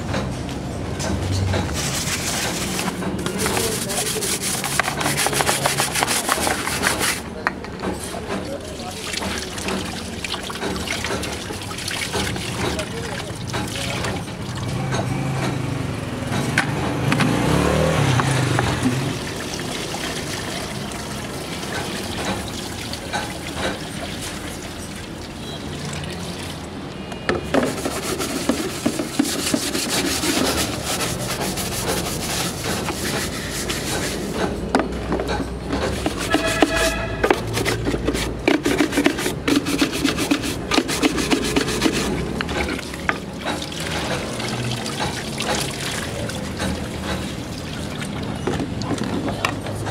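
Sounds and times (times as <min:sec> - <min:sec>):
water splashing and trickling: 0:08.0 - 0:34.5, 0:35.6 - 0:49.9
cloth scrubbing plastic case: 0:27.6 - 0:34.4, 0:35.9 - 0:42.9.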